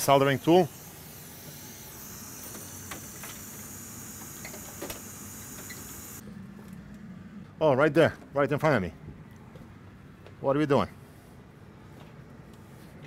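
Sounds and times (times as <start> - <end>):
hot air blower hissing: 0.0 - 6.2.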